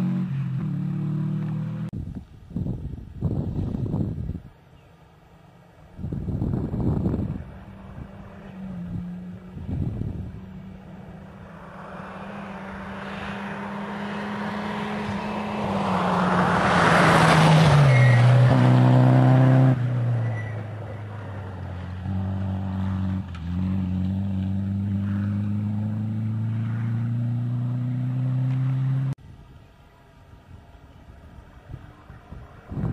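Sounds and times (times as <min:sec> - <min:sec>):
gravel and tyre rush: 0:00.0 - 0:32.9
rally car engine at full throttle: 0:21.4 - 0:29.2.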